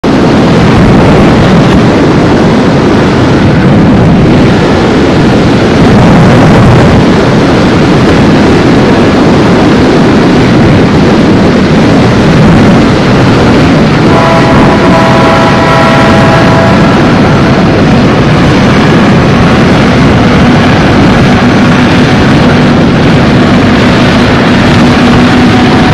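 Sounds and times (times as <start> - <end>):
wind buffeting microphone: 0.0 - 25.9
steady multi-pitch tone: 14.0 - 25.9.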